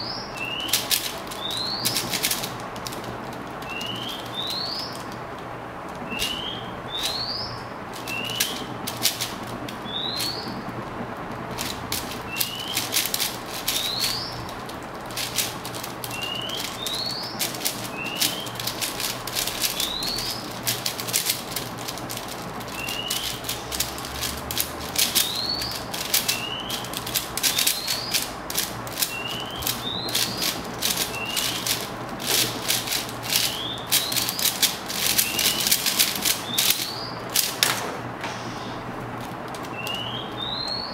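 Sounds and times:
bird chirping: 0:00.0 - 0:02.5, 0:03.6 - 0:05.1, 0:06.0 - 0:08.8, 0:09.8 - 0:10.6, 0:12.2 - 0:13.0, 0:13.7 - 0:14.6, 0:15.2 - 0:18.8, 0:19.4 - 0:21.1, 0:22.3 - 0:23.8, 0:25.0 - 0:28.3, 0:28.9 - 0:37.3, 0:39.7 - 0:40.9
plastic puzzle cube clicking: 0:00.4 - 0:05.2, 0:07.9 - 0:09.9, 0:11.5 - 0:37.8.

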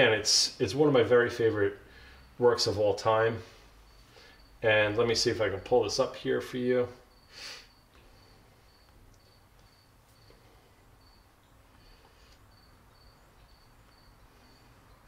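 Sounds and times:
short soft hiss: 0:07.3 - 0:07.7.

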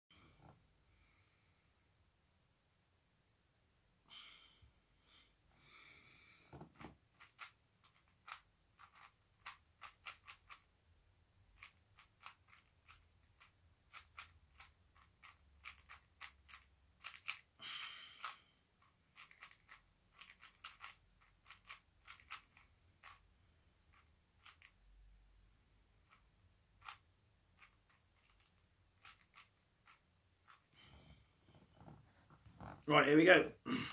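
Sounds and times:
hands rustling on cube: 0:06.4 - 0:10.8, 0:11.4 - 0:25.0, 0:25.9 - 0:32.8
puzzle cube layers clicking: 0:06.7 - 0:10.7, 0:11.4 - 0:17.6, 0:18.2 - 0:23.3, 0:23.9 - 0:24.9, 0:26.0 - 0:30.7.

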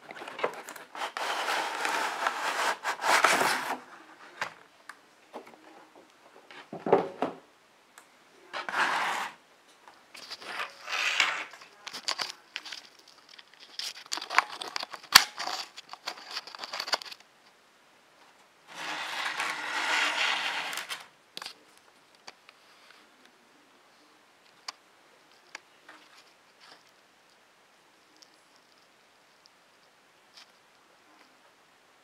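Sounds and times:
packaging scraping and sliding: 0:00.1 - 0:03.9, 0:08.6 - 0:09.4, 0:10.2 - 0:17.2, 0:18.7 - 0:21.1.

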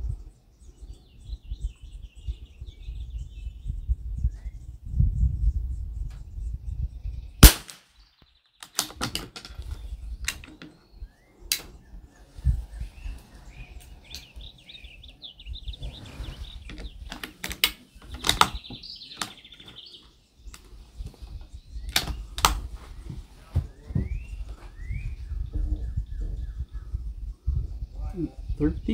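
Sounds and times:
birds chirping: 0:00.0 - 0:28.9
rifle shot: 0:07.4 - 0:08.0
rifle handling clicks and knocks: 0:08.6 - 0:10.8, 0:16.7 - 0:19.8, 0:21.9 - 0:22.6.

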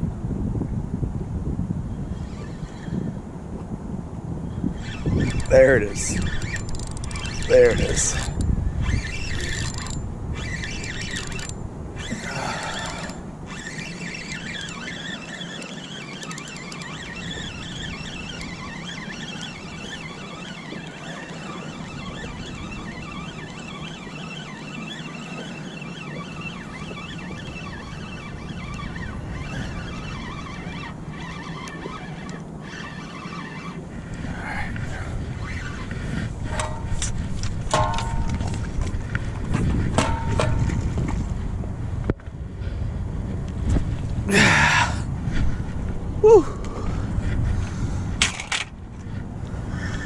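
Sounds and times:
fishing reel being cranked: 0:02.0 - 0:03.1, 0:04.6 - 0:39.1.

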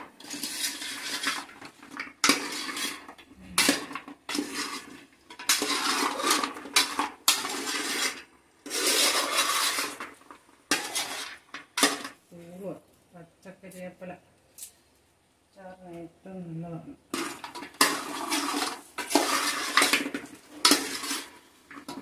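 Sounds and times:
metal spoon scraping a pan: 0:00.0 - 0:12.2, 0:17.1 - 0:22.0.

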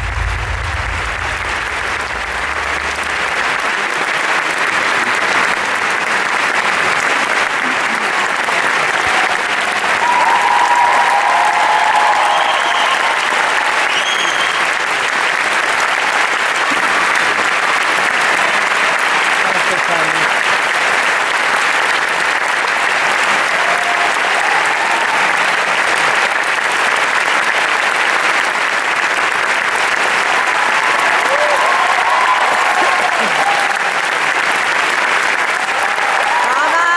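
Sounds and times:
low music note: 0:00.0 - 0:03.6
audience applauding: 0:00.0 - 0:36.9
cheers: 0:00.0 - 0:36.9.

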